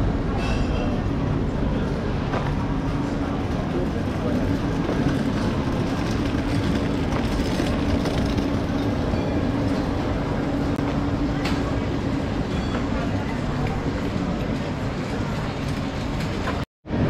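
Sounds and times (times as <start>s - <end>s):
wind: 0.0s - 17.0s
tyres rumbling on stone paving: 1.8s - 10.7s.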